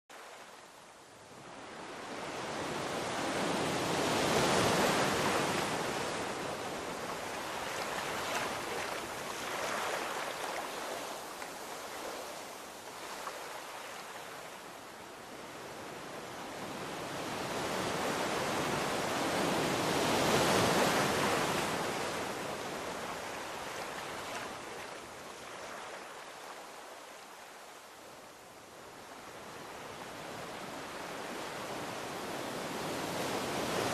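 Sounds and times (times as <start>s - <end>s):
ocean surf washing onto beach: 1.2s - 26.8s.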